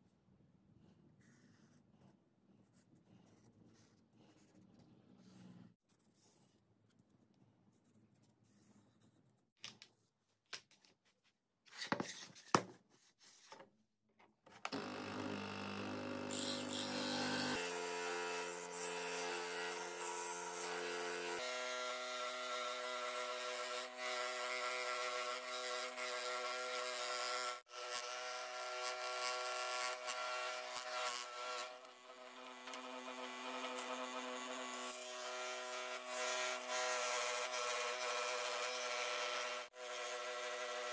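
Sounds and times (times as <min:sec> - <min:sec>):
scroll saw cutting wood: 0:14.7 - 0:40.9.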